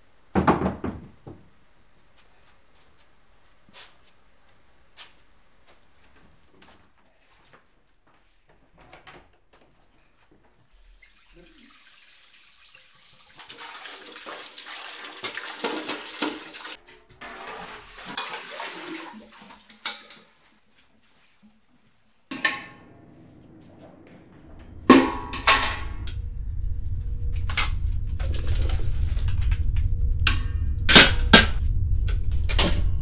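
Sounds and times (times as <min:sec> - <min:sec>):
tap water running into metal pot: 0:11.0 - 0:20.3
pot clanking against sink: 0:15.1 - 0:18.5
sudden loud hit: 0:24.4 - 0:33.0.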